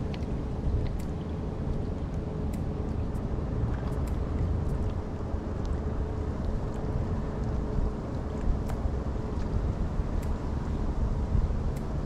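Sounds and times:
light ticks: 0:00.0 - 0:05.0, 0:05.6 - 0:09.5, 0:10.2 - 0:10.4, 0:11.7 - 0:12.0
faint steady hum: 0:00.0 - 0:12.0.

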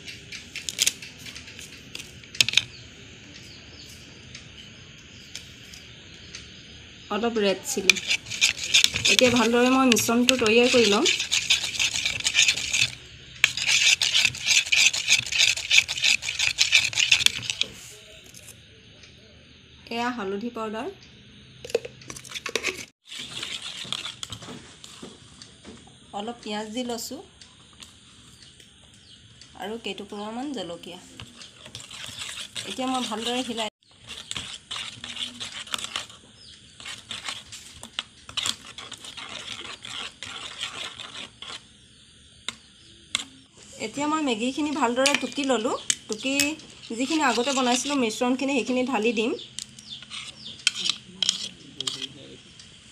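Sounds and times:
plastic spoon scraping a plastic bowl: 0:07.7 - 0:18.4, 0:21.7 - 0:25.1, 0:31.1 - 0:41.7, 0:44.7 - 0:48.4, 0:49.6 - 0:52.2.

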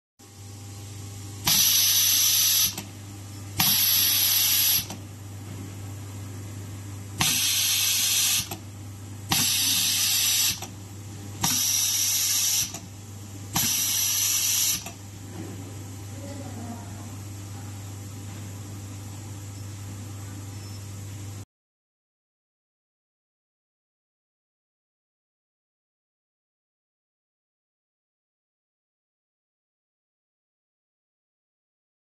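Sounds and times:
steady low hum: 0:00.2 - 0:21.4
laser welder hissing bursts: 0:01.4 - 0:02.9, 0:03.6 - 0:05.0, 0:07.2 - 0:08.6, 0:09.3 - 0:10.7, 0:11.4 - 0:12.9, 0:13.5 - 0:15.0.

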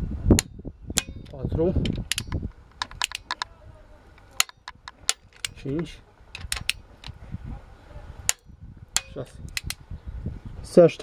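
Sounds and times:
torque wrench clicks: 0:00.4 - 0:03.5, 0:08.3 - 0:09.8.

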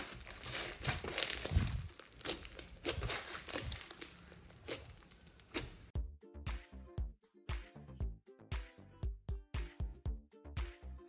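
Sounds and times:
hands kneading crackling slime: 0:00.0 - 0:05.9.

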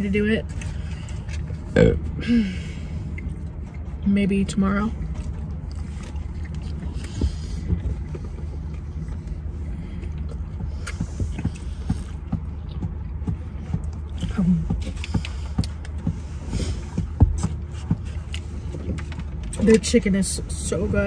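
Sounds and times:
car low hum: 0:00.0 - 0:21.0
chewing and mouth sounds: 0:02.9 - 0:04.0, 0:04.9 - 0:19.9.

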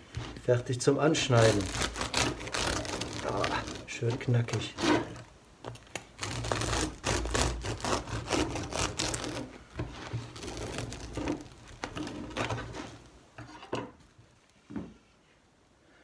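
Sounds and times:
bread knife sawing through crust: 0:01.2 - 0:03.9, 0:06.2 - 0:13.0.

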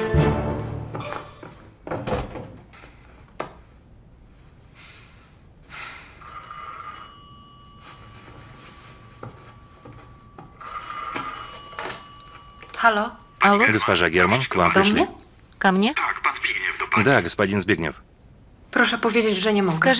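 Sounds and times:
telephone bell ringing: 0:06.2 - 0:14.4.

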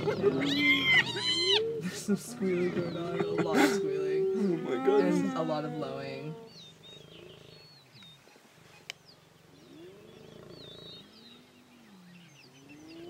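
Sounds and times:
hyenas squealing: 0:00.0 - 0:02.0, 0:02.6 - 0:06.6
hyenas moaning: 0:00.0 - 0:07.8.

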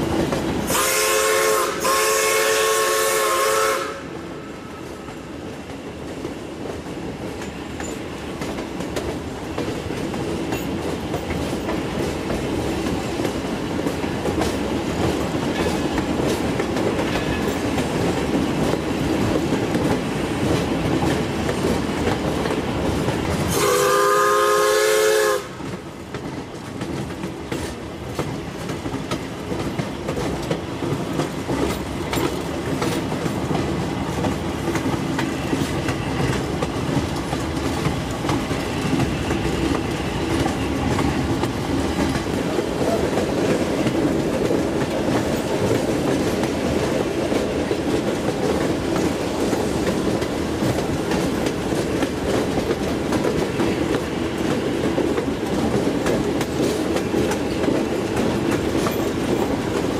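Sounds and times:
train rumbling on rails: 0:00.0 - 0:59.9
steam whistle blast: 0:00.7 - 0:04.1, 0:23.5 - 0:25.6.

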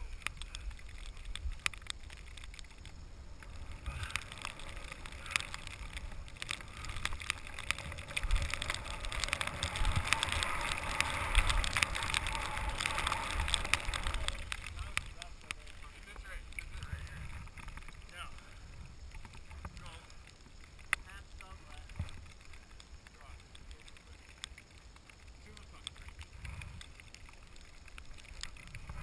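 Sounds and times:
small snow crackles: 0:00.0 - 0:29.0
skis hissing through powder snow: 0:02.9 - 0:17.5.

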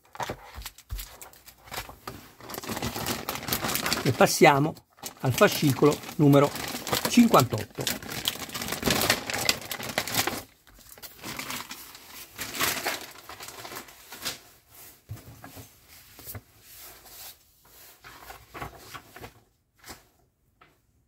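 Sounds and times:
packaging rustling: 0:00.0 - 0:14.4.

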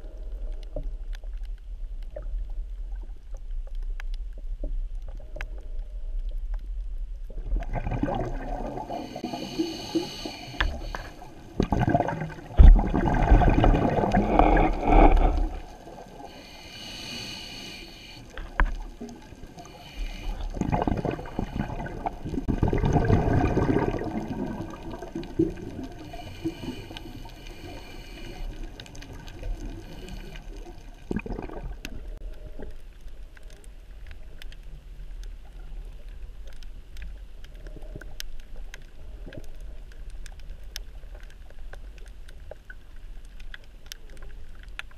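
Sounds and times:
faint clicks: 0:00.0 - 0:06.9, 0:31.8 - 0:44.9
underwater watery wash: 0:00.0 - 0:44.9
exhaled bubbles: 0:07.3 - 0:16.4, 0:18.4 - 0:32.3
regulator hissing inhale: 0:08.8 - 0:11.5, 0:16.2 - 0:18.6, 0:19.6 - 0:22.2, 0:25.9 - 0:30.9.

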